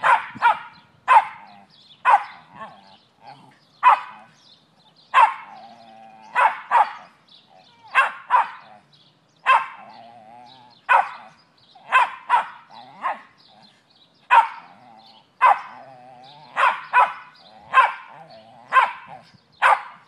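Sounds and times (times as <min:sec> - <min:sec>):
dog barking: 0:00.0 - 0:02.7, 0:03.8 - 0:04.3, 0:05.1 - 0:05.5, 0:06.4 - 0:07.1, 0:07.9 - 0:08.6, 0:09.4 - 0:09.8, 0:10.9 - 0:11.3, 0:11.9 - 0:13.3, 0:14.3 - 0:14.7, 0:15.4 - 0:15.7, 0:16.5 - 0:20.0
dog moaning: 0:02.5 - 0:03.7, 0:05.5 - 0:06.5, 0:09.8 - 0:10.9, 0:14.6 - 0:16.7.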